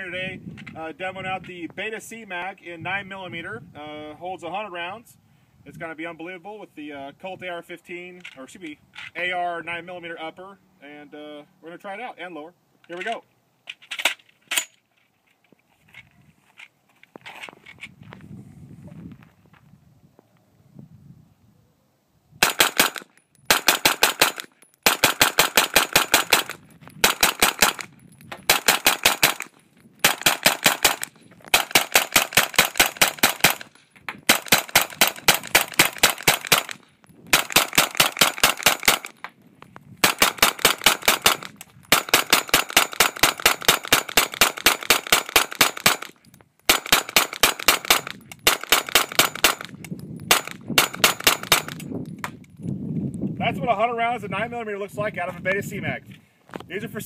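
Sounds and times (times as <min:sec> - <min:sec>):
rapid gunshots: 0:22.4 - 0:27.9, 0:28.5 - 0:33.7, 0:34.3 - 0:39.1, 0:40.0 - 0:46.1, 0:46.7 - 0:49.7, 0:50.3 - 0:51.8.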